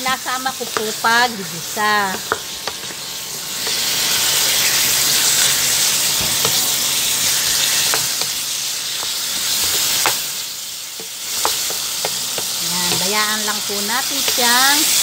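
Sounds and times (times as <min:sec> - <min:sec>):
spatula knocking on a pan: 0:00.0 - 0:01.2, 0:02.0 - 0:03.9, 0:06.2 - 0:06.7, 0:07.7 - 0:14.6
meat sizzling in hot oil: 0:00.0 - 0:15.0.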